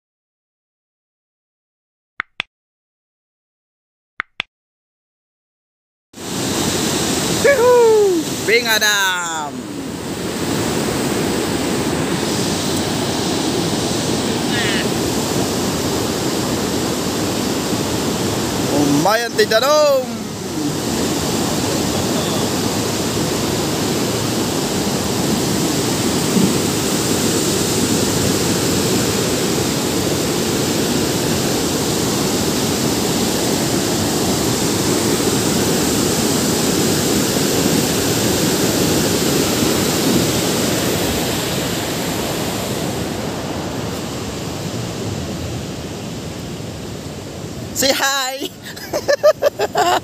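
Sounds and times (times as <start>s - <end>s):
roar of falling water: 20.0s - 43.8s.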